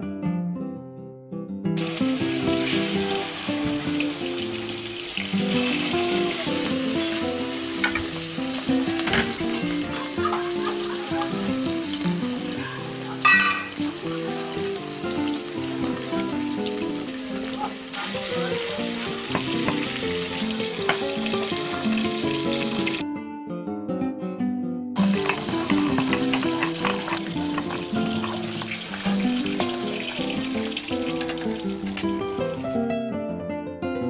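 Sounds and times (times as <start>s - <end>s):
instrumental music: 0.0s - 34.0s
oil sizzling in a wok: 1.8s - 23.0s, 25.0s - 32.8s.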